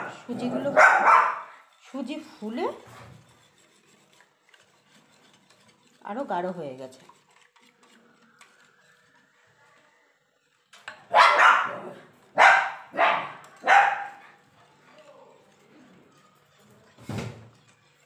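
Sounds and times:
dog barking: 0.0 - 1.5, 11.1 - 14.2.

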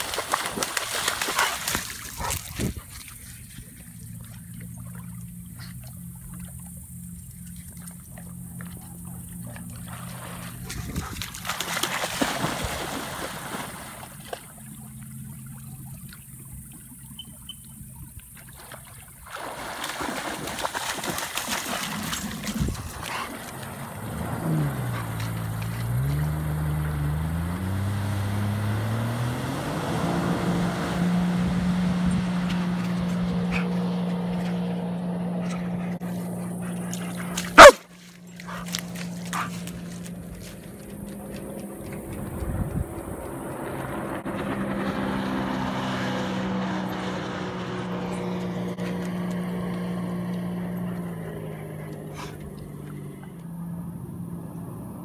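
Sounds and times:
dog splashing through water: 0.0 - 16.4, 18.3 - 30.9, 35.3 - 43.4
jet ski engine revving: 3.5 - 18.0, 21.7 - 55.0
dog vocalising: 35.5 - 37.8.

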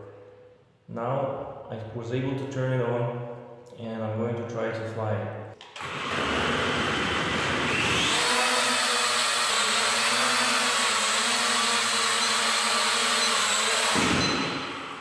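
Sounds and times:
drone motors whirring: 5.8 - 14.9.

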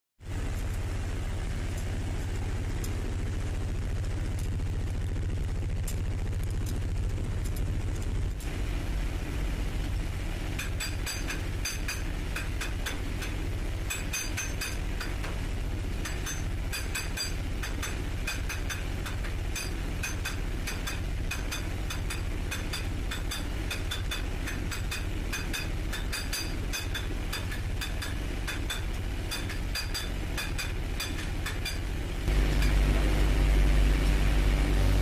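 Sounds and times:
engine-room machinery drone: 0.2 - 35.0
sharp metallic clicks: 16.0 - 31.9.

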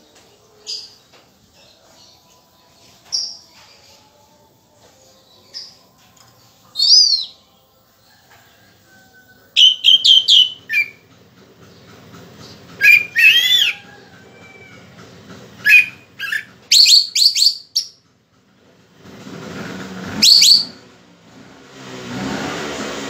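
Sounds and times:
thrush singing whistled phrases: 6.7 - 7.5, 9.5 - 11.0, 12.8 - 13.9, 15.6 - 18.0, 20.2 - 20.8.

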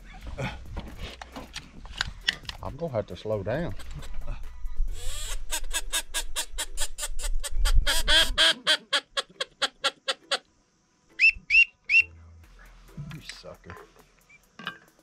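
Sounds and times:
duck call quacking: 7.8 - 10.4
short whistled peeps: 11.1 - 12.2, 14.2 - 14.5.

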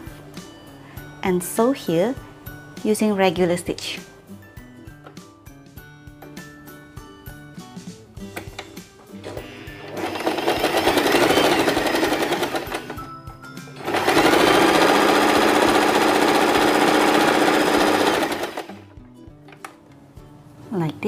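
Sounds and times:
sewing machine stitching: 9.2 - 13.0, 13.8 - 18.8.

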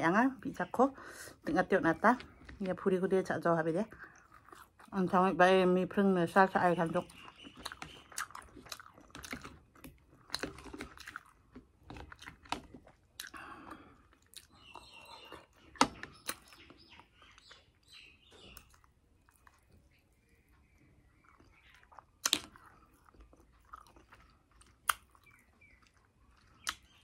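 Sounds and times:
person chewing food: 3.9 - 5.0, 7.0 - 27.0
mouth smacks and clicks: 21.2 - 27.0.

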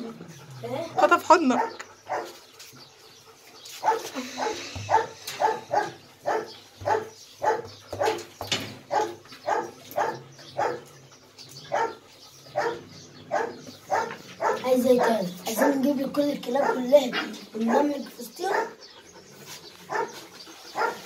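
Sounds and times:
dog barking: 1.0 - 2.4, 3.8 - 8.2, 8.9 - 10.8, 11.7 - 12.0, 12.6 - 15.9, 16.6 - 18.8, 19.9 - 20.2, 20.8 - 21.0.

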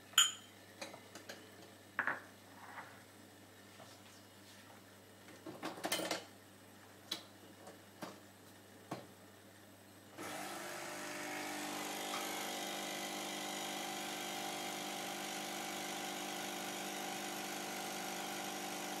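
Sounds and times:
coffee machine pump humming: 10.2 - 19.0.

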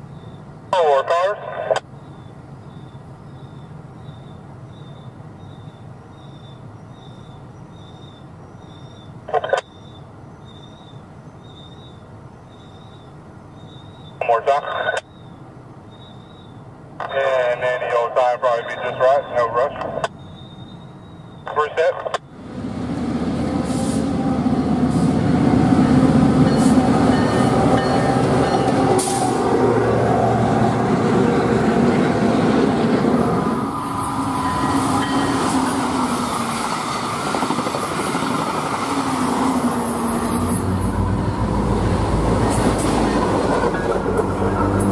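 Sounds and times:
diesel locomotive engine rumble: 1.4 - 14.3, 14.9 - 44.9
train wheels on rail: 22.5 - 44.9.

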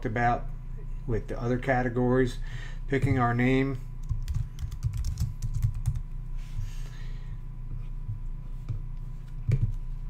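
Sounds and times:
typing on computer keyboard: 4.0 - 6.0.

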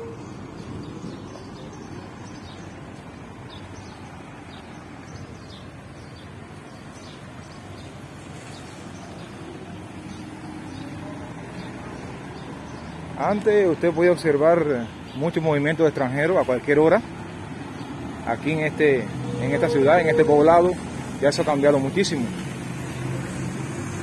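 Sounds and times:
road traffic hum: 0.0 - 24.0
faint bird chirps: 19.2 - 20.8.

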